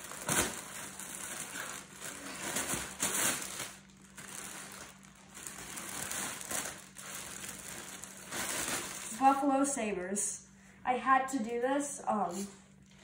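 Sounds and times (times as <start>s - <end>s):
plastic packaging crinkling: 0.0s - 9.4s.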